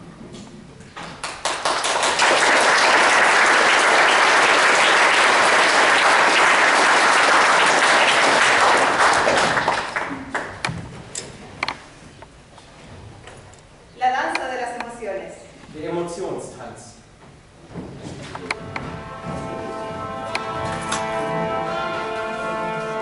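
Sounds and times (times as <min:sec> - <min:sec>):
audience applauding: 0:01.1 - 0:10.6.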